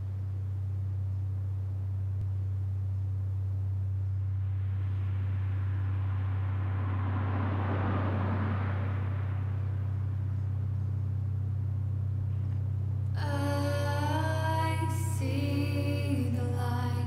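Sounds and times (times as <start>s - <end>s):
steady low hum: 0.0s - 17.0s
car driving past: 4.6s - 11.6s.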